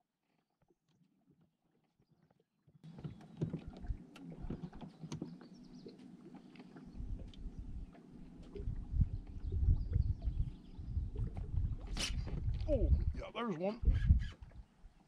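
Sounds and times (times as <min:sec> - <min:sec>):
water lapping against hull: 0:00.7 - 0:15.0
low rumble: 0:06.9 - 0:13.2.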